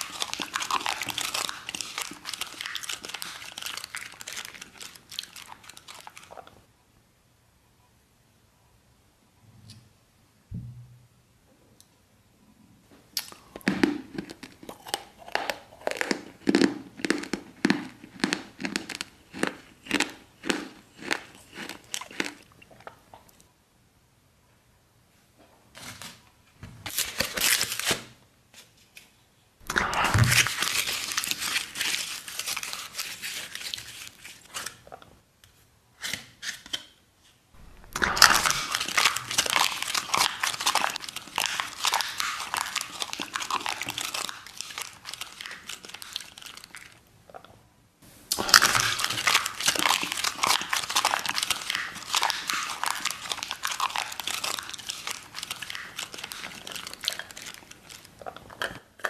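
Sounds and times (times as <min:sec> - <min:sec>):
packaging crinkling and tearing: 0:00.0 - 0:06.5, 0:26.9 - 0:29.0, 0:29.6 - 0:34.8, 0:37.6 - 0:47.0, 0:48.3 - 0:58.3.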